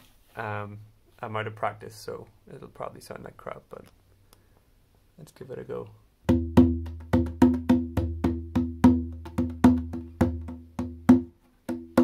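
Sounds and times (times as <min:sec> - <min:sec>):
hand drum beat: 0:06.3 - 0:12.0.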